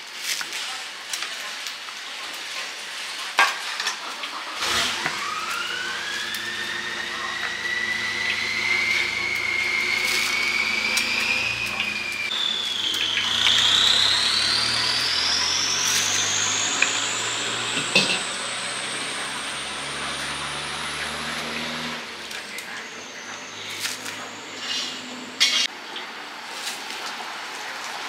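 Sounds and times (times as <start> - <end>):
low hum: 4.6 - 25.7
machine whine: 4.6 - 25.7.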